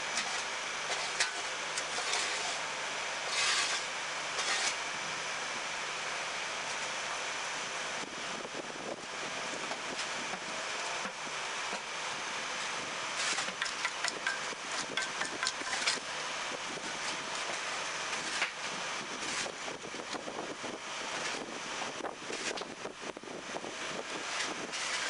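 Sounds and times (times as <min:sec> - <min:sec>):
machinery noise: 0:00.1 - 0:05.8
wooden board scraping over concrete: 0:00.2 - 0:02.6, 0:03.2 - 0:04.8, 0:24.2 - 0:25.0.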